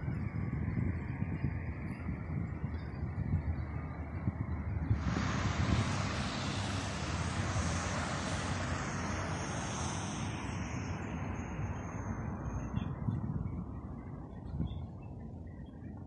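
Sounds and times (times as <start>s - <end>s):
passing vehicle rushing: 3.7s - 14.2s.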